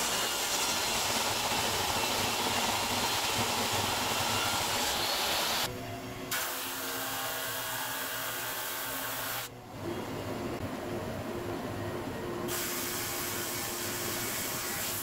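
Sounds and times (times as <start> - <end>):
sanding hiss: 0.0 - 5.7.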